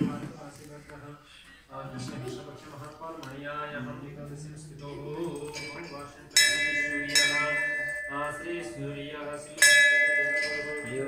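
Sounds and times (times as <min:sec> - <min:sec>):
man chanting: 0:00.0 - 0:11.0
temple bell ringing: 0:05.5 - 0:11.0.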